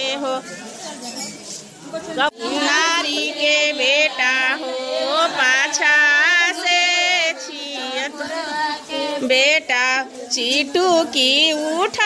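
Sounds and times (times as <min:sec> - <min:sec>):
women singing folk song: 0:02.1 - 0:12.0.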